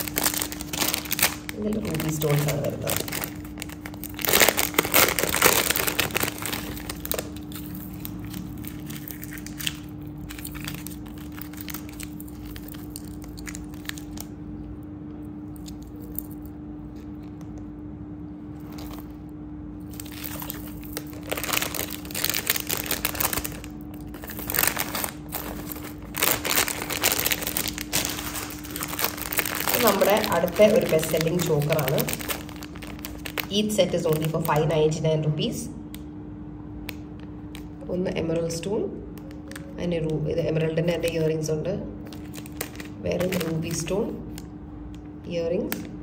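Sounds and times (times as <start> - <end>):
paper packets crinkling: 0.0 - 14.4, 19.8 - 34.7, 42.0 - 44.5
steady low hum: 0.0 - 46.0.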